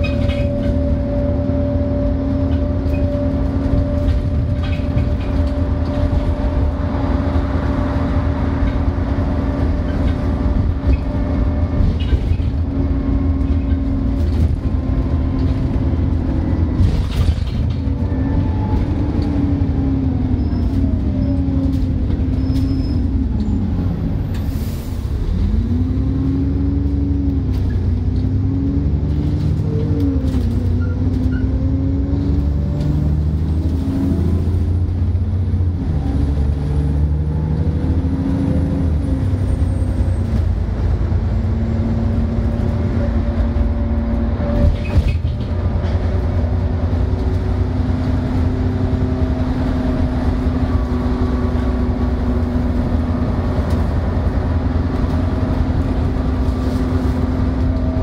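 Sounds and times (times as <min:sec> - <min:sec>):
bus engine deep rumble: 0:00.0 - 0:58.0
loud drivetrain whine: 0:00.0 - 0:58.0.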